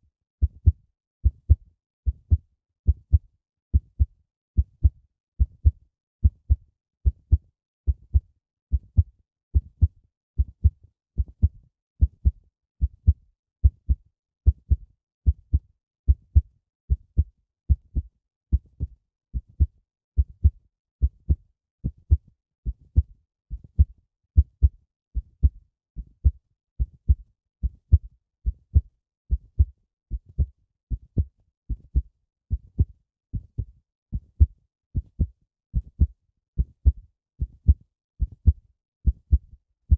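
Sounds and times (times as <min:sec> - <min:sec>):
heartbeat thumps: 0:23.8 - 0:25.6, 0:28.7 - 0:32.0, 0:32.8 - 0:37.0, 0:37.6 - 0:39.4.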